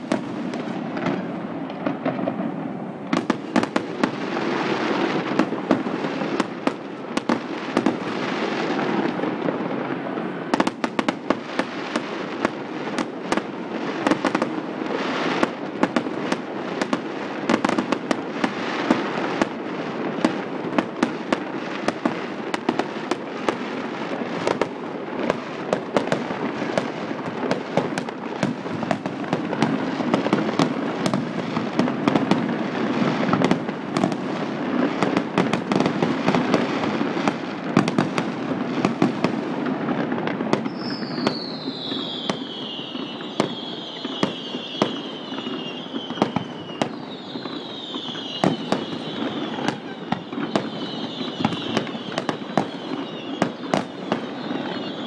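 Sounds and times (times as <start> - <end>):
fireworks bangs and crackles: 0.0 - 55.0
falling firework whistles: 40.5 - 55.0.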